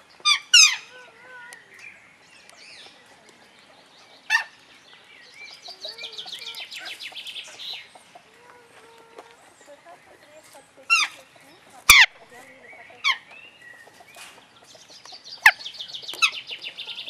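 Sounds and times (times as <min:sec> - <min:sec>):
bird squawk: 0:00.2 - 0:01.4, 0:11.9 - 0:12.2
bird chattering trill: 0:05.4 - 0:08.2, 0:10.0 - 0:17.0.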